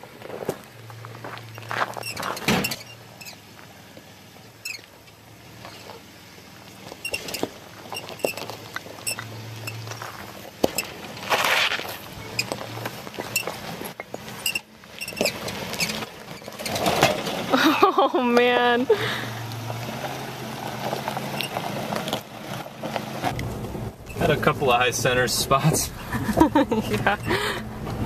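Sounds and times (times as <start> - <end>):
gravel crunching under tyres: 0.0 - 28.0
scraping rush: 8.5 - 14.5, 15.2 - 28.0
low engine drone: 17.5 - 28.0.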